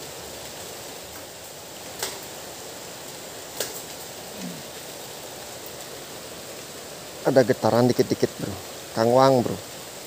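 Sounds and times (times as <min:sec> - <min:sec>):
water hissing: 0:02.5 - 0:10.0.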